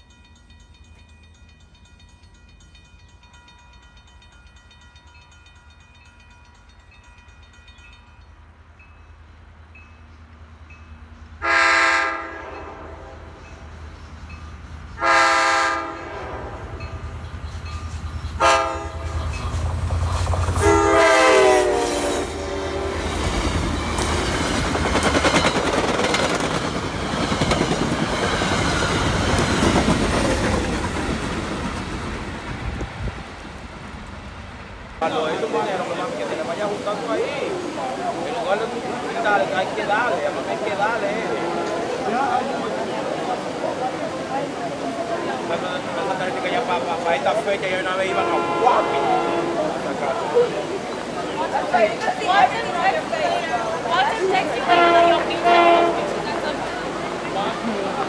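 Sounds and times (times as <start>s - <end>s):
train horn blasts: 11.4s - 13.4s, 15.0s - 17.0s, 18.3s - 19.4s, 20.6s - 23.1s, 41.2s - 42.0s, 48.0s - 49.8s, 54.6s - 56.3s
train wheels clacking on rails: 16.6s - 35.0s.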